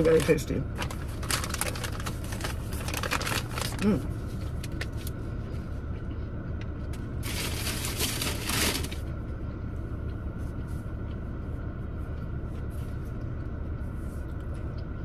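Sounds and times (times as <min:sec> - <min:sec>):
sandwich wrapping crackling: 0:00.0 - 0:05.1, 0:07.2 - 0:09.1.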